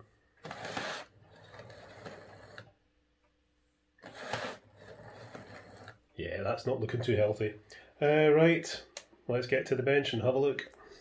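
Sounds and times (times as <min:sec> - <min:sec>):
model train motor whirring: 0:00.4 - 0:02.6, 0:04.0 - 0:06.0.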